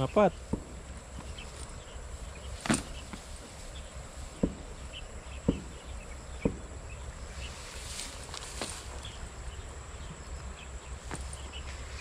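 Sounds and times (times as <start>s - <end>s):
insects chirping: 0.0s - 12.0s
dull thumps: 0.4s - 1.7s, 2.5s - 3.6s, 4.3s - 4.8s, 5.4s - 6.8s.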